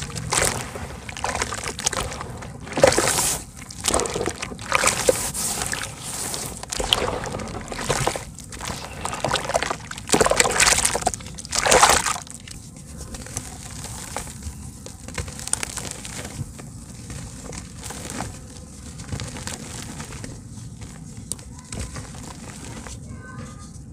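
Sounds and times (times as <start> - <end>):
hands sloshing water in a tub: 0.0 - 14.5
dirt crumbling in water: 0.0 - 21.0.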